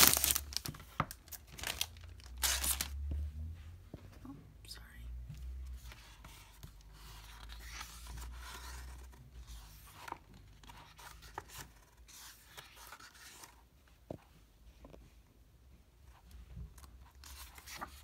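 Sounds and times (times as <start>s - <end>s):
paper pages rustling: 0.0s - 3.0s, 5.8s - 13.6s, 17.0s - 18.0s.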